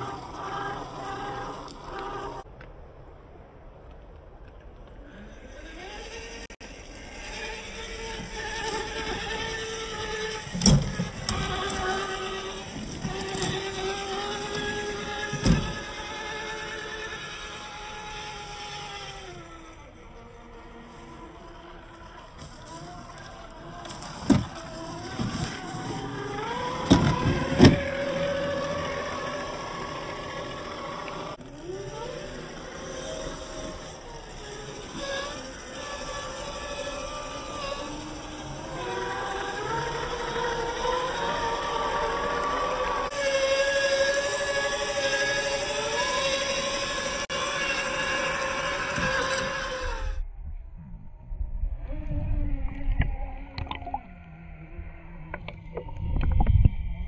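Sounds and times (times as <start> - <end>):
electric motor and gears whining: 0.0 - 2.6, 4.8 - 57.0
motor whine rising in pitch: 0.0 - 2.6, 5.0 - 57.0
muffled underwater churning: 6.4 - 57.0
bubbly clicks and pops: 53.6 - 54.0.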